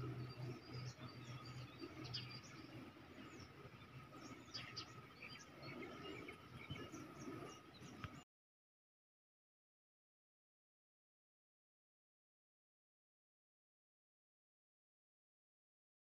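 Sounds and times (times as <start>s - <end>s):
birds chirping: 0.0s - 8.2s.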